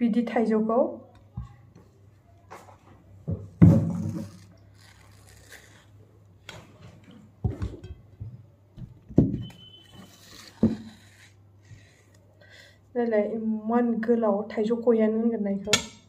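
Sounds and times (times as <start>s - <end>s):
knife peeling and slicing mango: 3.8s - 6.7s, 9.5s - 12.3s.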